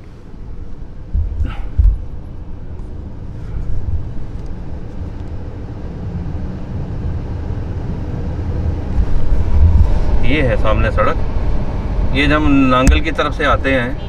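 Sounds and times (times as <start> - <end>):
car engine and road rumble: 0.0 - 14.0
low thump: 1.1 - 2.1.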